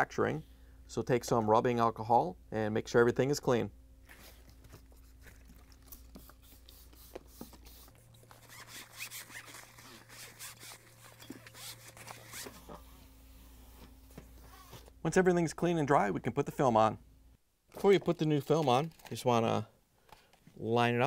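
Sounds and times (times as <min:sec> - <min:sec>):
paper towel rubbing: 0:04.1 - 0:12.8.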